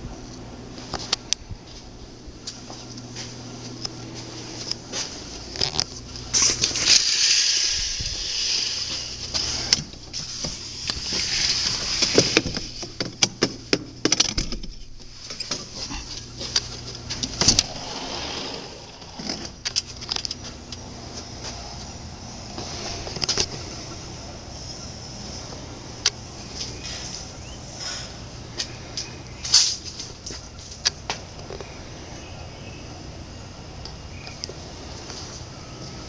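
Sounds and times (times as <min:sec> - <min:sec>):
sliding door rattling: 0:17.2 - 0:19.8.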